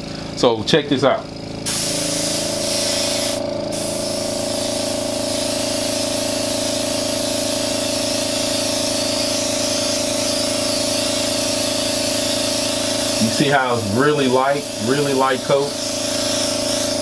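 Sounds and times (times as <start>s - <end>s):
steady hum: 0.0s - 17.0s
airbrush spraying hiss: 1.6s - 17.0s.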